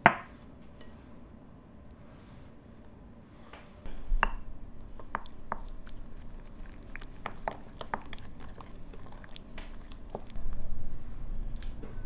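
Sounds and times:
spoon stirring in a glass bowl: 4.9s - 10.4s.

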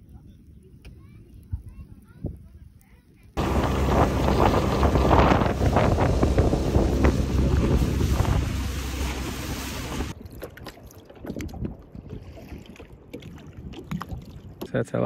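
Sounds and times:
wind buffeting microphone: 3.4s - 10.3s
boat engine rumble: 3.4s - 10.4s
underwater sound: 3.4s - 14.5s
rushing water: 3.4s - 14.6s.

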